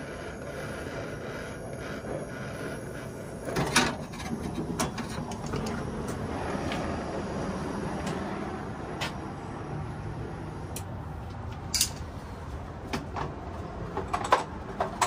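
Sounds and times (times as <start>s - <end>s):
brazing torch hissing: 0.0s - 8.7s.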